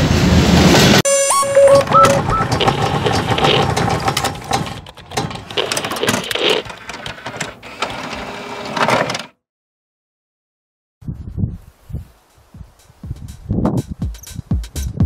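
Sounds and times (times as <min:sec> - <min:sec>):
rapid clicks and mechanical ticking: 0:01.8 - 0:07.6.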